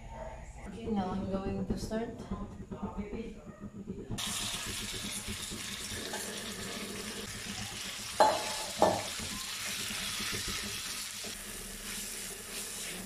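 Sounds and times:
knocks against pan: 0:01.3 - 0:11.4
chicken sizzling in a pan: 0:04.2 - 0:13.0.

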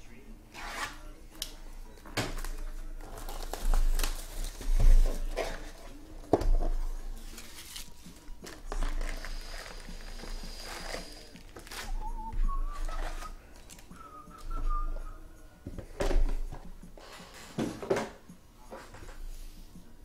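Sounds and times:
rustling of foil packs: 0:02.0 - 0:14.0.

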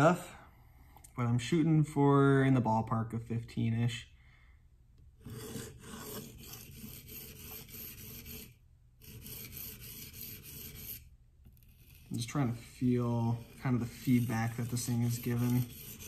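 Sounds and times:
knife sharpening on a stone: 0:13.4 - 0:16.0.

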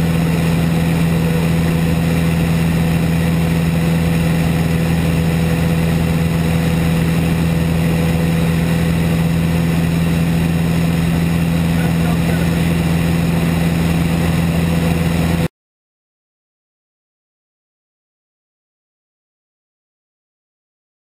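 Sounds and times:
light aircraft engine droning: 0:00.0 - 0:15.5.

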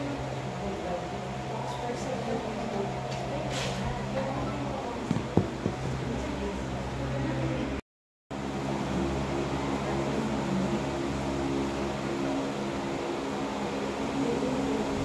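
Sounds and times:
faint indistinct voices: 0:00.0 - 0:07.8
room hum: 0:00.0 - 0:07.8, 0:08.4 - 0:15.0.

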